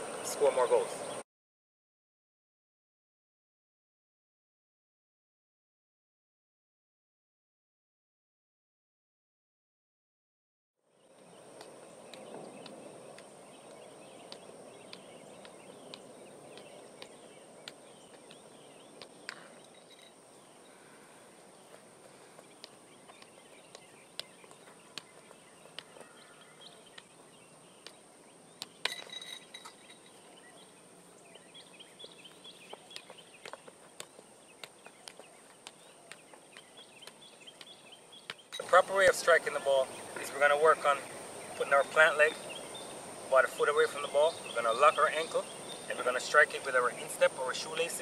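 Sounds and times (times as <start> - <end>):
birds chirping faintly: 0.0 - 1.2, 10.8 - 48.0.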